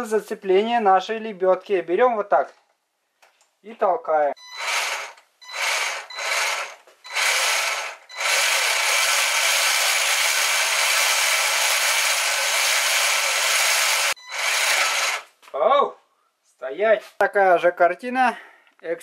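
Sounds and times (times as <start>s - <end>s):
winch gears whirring: 4.5s - 15.3s.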